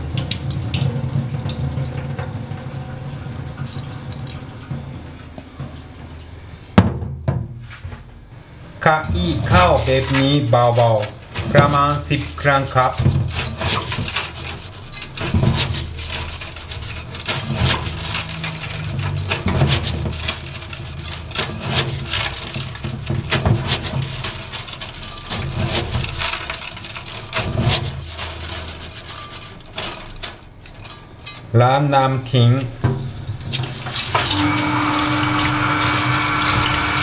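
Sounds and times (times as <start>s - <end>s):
rice grains rattling in metal bowl: 9.0s - 32.5s, 33.2s - 37.0s.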